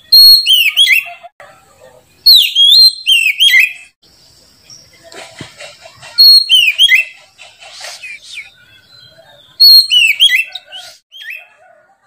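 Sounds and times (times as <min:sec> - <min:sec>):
bird singing whistled phrases: 0:00.0 - 0:01.2, 0:02.2 - 0:03.9, 0:06.2 - 0:07.2, 0:08.0 - 0:11.5.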